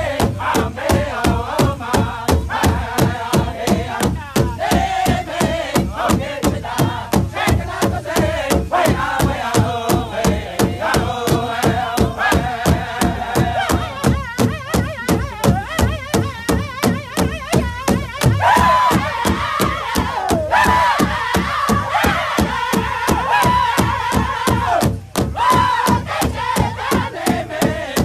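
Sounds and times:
group singing in unison: 0:00.0 - 0:16.2, 0:17.9 - 0:28.0
large drum struck with beaters: 0:00.0 - 0:28.0.

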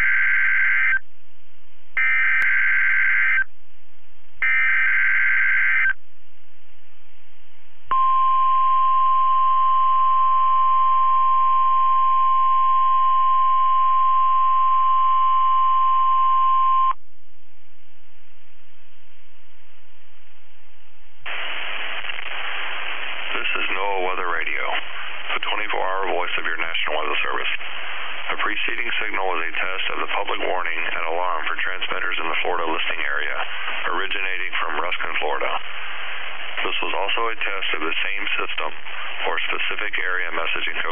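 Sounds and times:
steady weather radio alert tone: 0:00.0 - 0:01.0, 0:02.0 - 0:03.5, 0:04.4 - 0:06.0, 0:07.9 - 0:17.0, 0:21.3 - 0:40.9
warbling digital header bursts: 0:04.4 - 0:05.9
radio hiss: 0:21.3 - 0:40.9.

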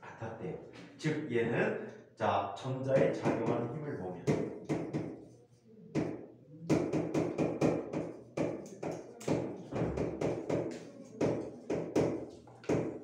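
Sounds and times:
chalk tapping on a board: 0:04.2 - 0:13.0.

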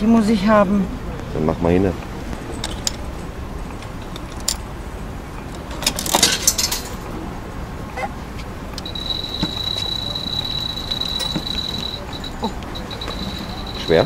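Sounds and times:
street background noise: 0:00.0 - 0:14.0
small metal clicks: 0:04.0 - 0:04.7
coins jingling: 0:08.8 - 0:14.0.

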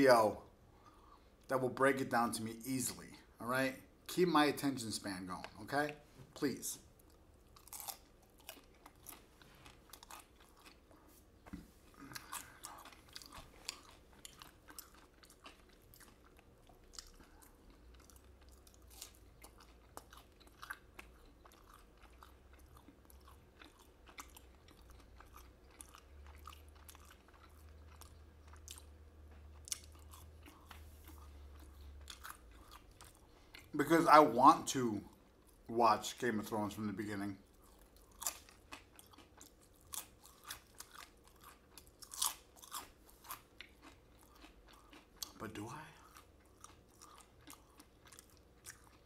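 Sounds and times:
chewing crispy fried food: 0:05.4 - 0:49.0.

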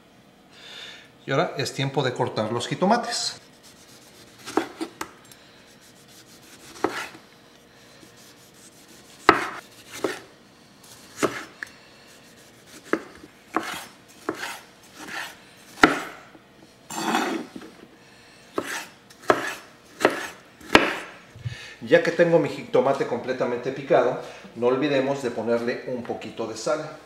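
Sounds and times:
knife slicing on wooden board: 0:03.5 - 0:05.0, 0:05.8 - 0:07.2, 0:08.0 - 0:10.3, 0:11.2 - 0:11.5, 0:12.2 - 0:16.1, 0:18.6 - 0:21.0.

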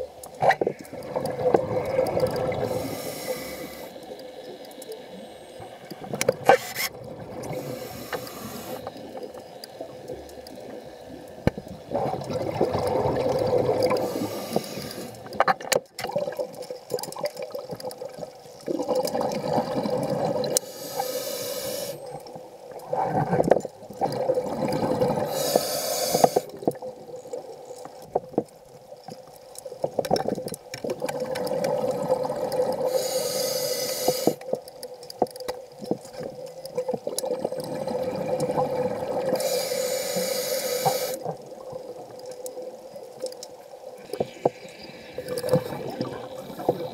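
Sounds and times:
underwater water sloshing: 0:00.0 - 0:46.9
brief hissing bursts: 0:25.3 - 0:26.5.

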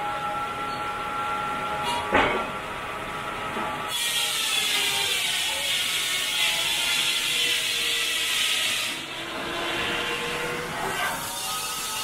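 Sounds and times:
running mill machinery: 0:00.0 - 0:12.0
saw rasping through timber: 0:03.9 - 0:12.0.

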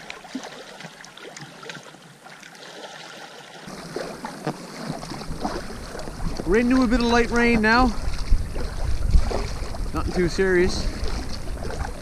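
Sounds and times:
paddle splashes: 0:00.0 - 0:12.0
waves lapping on rocks: 0:00.0 - 0:12.0
wind rumbling on microphone: 0:03.7 - 0:12.0.

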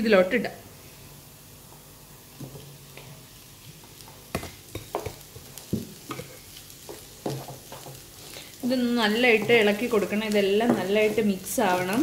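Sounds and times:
oil sizzling: 0:00.1 - 0:12.0
spatula scraping frying pan: 0:06.1 - 0:12.0.

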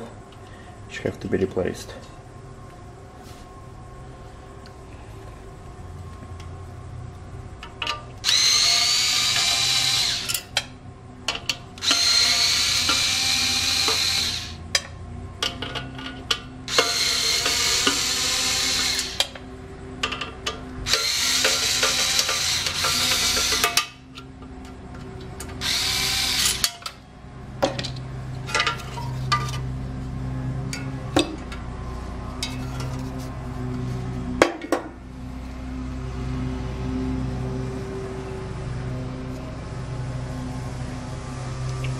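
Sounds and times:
electric screwdriver whining: 0:08.2 - 0:10.4, 0:11.8 - 0:14.6, 0:16.7 - 0:19.4, 0:20.9 - 0:23.6, 0:25.6 - 0:26.7
screws and metal clicking: 0:11.8 - 0:14.6, 0:16.0 - 0:19.4, 0:20.9 - 0:24.3.

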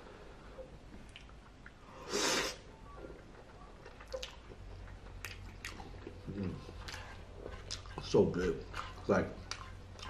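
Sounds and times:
wet chewing clicks and smacks: 0:00.9 - 0:01.8, 0:03.3 - 0:10.0
man slurping spaghetti: 0:02.0 - 0:02.6.

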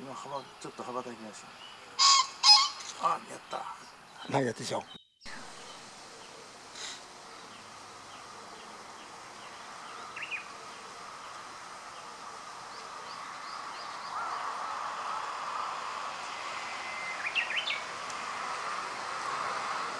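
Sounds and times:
faint steady hum: 0:05.3 - 0:19.9.

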